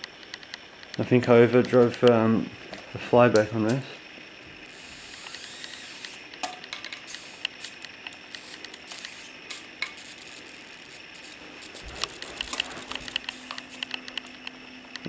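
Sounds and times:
high-voltage arc sizzling and snapping: 0:00.0 - 0:15.0.

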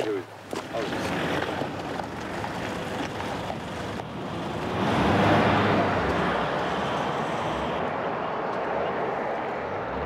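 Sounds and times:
tyres on gravel: 0:00.0 - 0:07.8
truck engine: 0:00.8 - 0:10.0.

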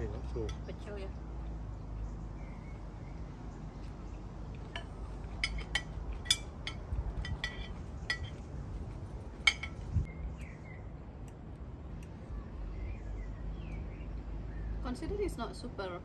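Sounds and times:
cutlery clinking on dishes: 0:04.7 - 0:08.4, 0:09.4 - 0:09.8.

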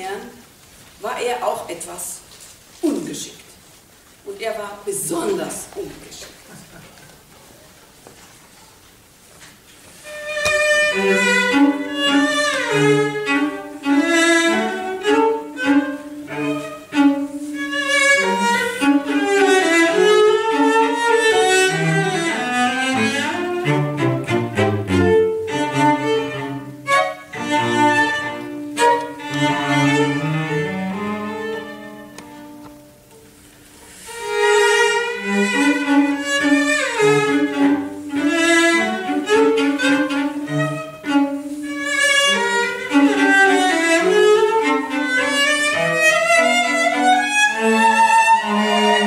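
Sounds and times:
cello ensemble playing: 0:10.0 - 0:49.0.

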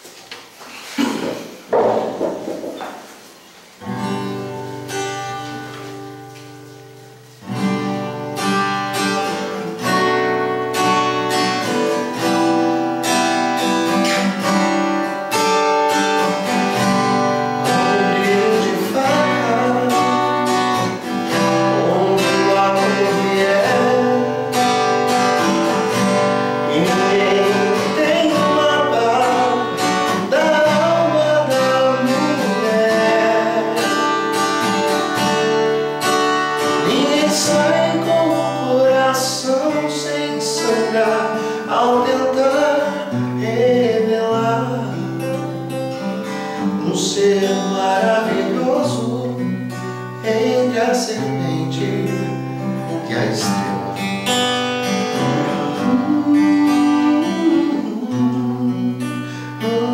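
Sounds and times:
acoustic guitar strumming: 0:00.0 - 0:59.9
person singing: 0:17.5 - 0:25.0, 0:26.6 - 0:34.2, 0:36.6 - 0:45.4, 0:46.6 - 0:49.6, 0:55.1 - 0:59.9.

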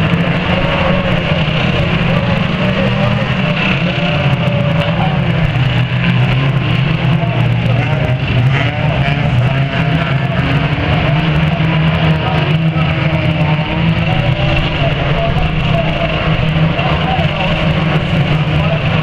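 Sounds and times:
racing car engines droning: 0:00.0 - 0:19.0.

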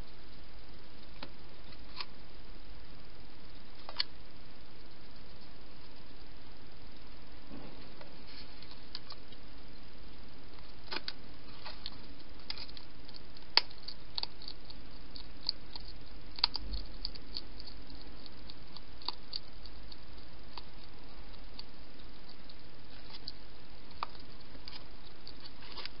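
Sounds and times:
steady hiss: 0:00.0 - 0:26.0
hedgehog chewing clicks: 0:11.8 - 0:26.0.

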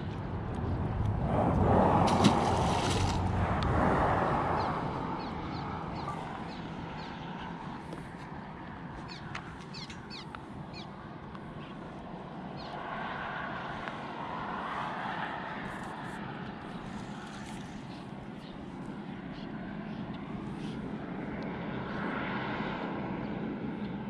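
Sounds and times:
distant engine hum: 0:00.0 - 0:24.0.

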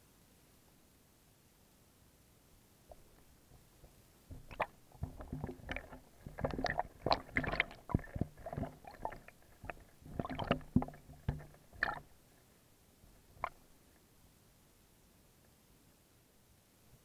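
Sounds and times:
fish knocking on camera housing: 0:04.3 - 0:12.1.

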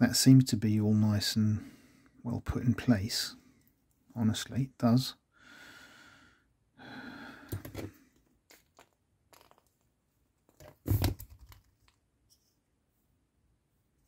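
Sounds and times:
plastic parts rustling and clicking: 0:07.5 - 0:12.4.

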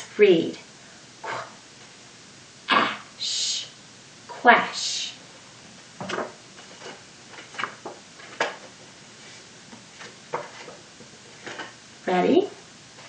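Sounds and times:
paper cards tapping and rustling: 0:06.0 - 0:08.9, 0:09.7 - 0:11.8.

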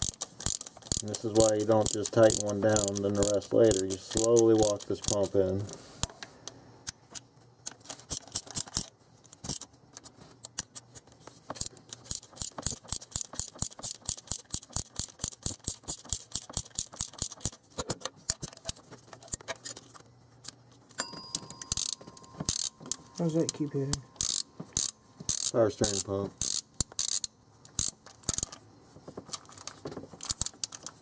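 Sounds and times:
socket ratchet clicking: 0:00.0 - 0:05.4, 0:11.5 - 0:17.6, 0:21.3 - 0:28.6, 0:29.3 - 0:31.0.

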